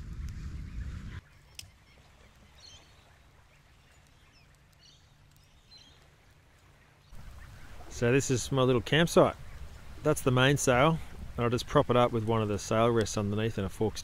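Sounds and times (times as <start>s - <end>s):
low rumbling noise: 0.0s - 1.2s.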